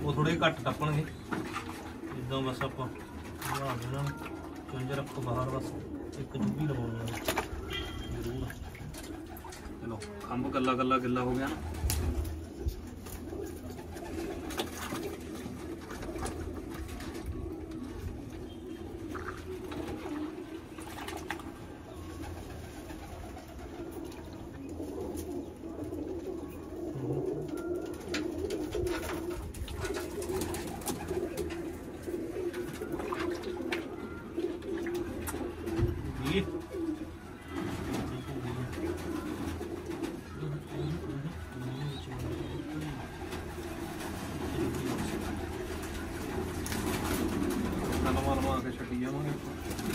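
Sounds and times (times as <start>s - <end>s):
pigeons cooing: 0.0s - 49.9s
wing flaps: 42.8s - 48.5s.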